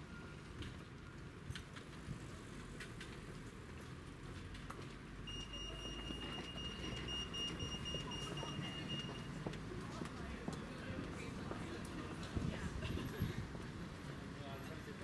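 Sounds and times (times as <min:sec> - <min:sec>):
street traffic rumble: 0:00.0 - 0:15.0
high-pitched electronic beep tone: 0:05.3 - 0:09.3.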